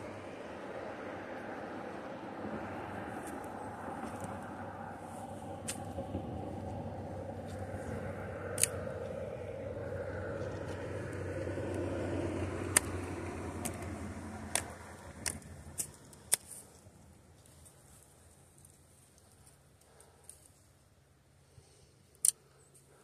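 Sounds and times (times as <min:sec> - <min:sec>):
vehicle passing by: 0:00.0 - 0:17.1
sharp clicks: 0:08.6 - 0:09.2, 0:12.7 - 0:16.6.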